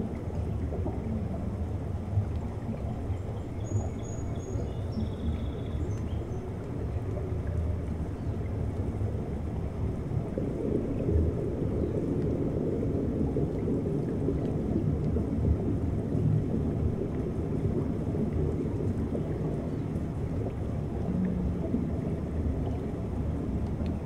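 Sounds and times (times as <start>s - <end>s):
underwater ocean rumble: 0.0s - 24.0s
faint ticks: 5.3s - 8.9s, 23.5s - 24.0s.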